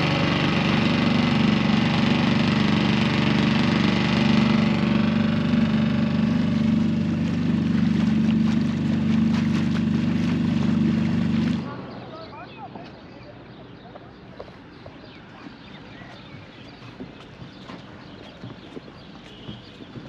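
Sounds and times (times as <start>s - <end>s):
outboard motor running: 0.0s - 12.5s, 15.2s - 20.0s.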